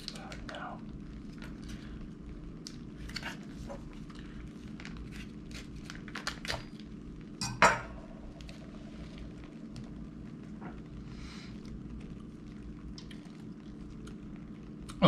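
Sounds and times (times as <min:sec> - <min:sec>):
food packets crinkling: 0:02.9 - 0:06.9.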